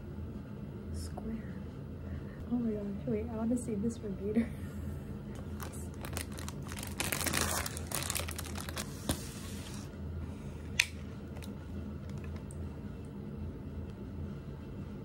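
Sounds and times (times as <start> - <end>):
packaging crinkling: 5.4 - 9.9.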